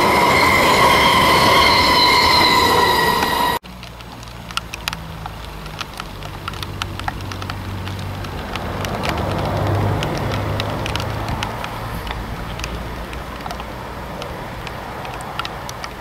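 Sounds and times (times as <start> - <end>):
distant train rumble: 0.0 - 16.0
light ticks: 3.6 - 16.0.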